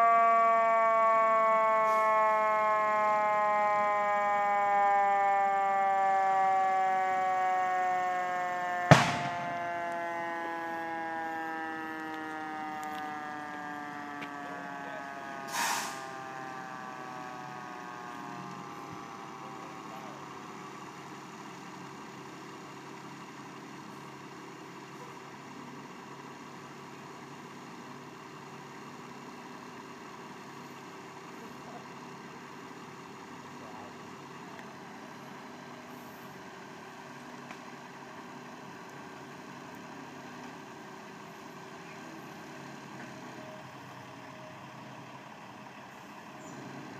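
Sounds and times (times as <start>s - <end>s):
fire engine siren winding down: 0.0s - 46.9s
low engine rumble: 0.0s - 46.9s
sharp bang: 8.9s - 9.6s
short hiss: 15.5s - 16.0s.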